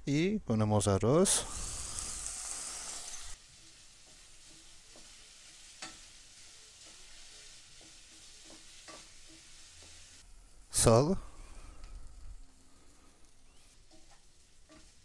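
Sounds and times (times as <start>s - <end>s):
butter sizzling in a pot: 1.3s - 15.0s
wooden spatula stirring rice: 3.4s - 10.2s, 12.4s - 15.0s.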